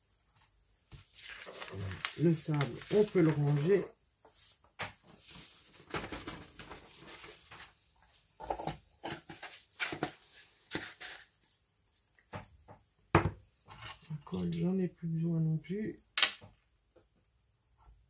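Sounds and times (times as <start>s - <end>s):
paper rustling: 0.9s - 11.6s.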